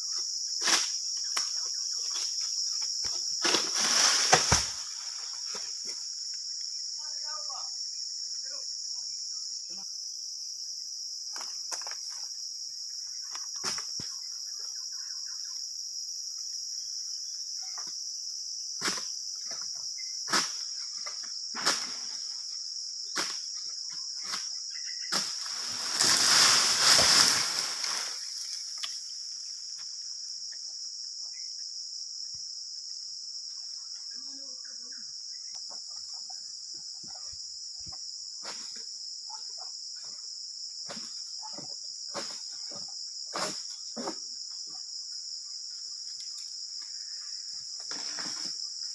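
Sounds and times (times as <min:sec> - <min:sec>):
high-pitched insect drone: 0:00.0 - 0:48.9
loud rustling rush of leaves: 0:25.4 - 0:28.4.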